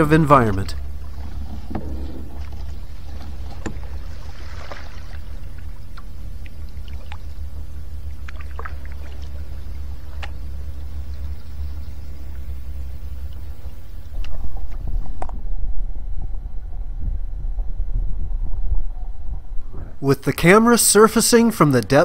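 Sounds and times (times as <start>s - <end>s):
muffled underwater rumble: 0.0s - 22.0s
faint clicks and ticks: 5.6s - 7.5s.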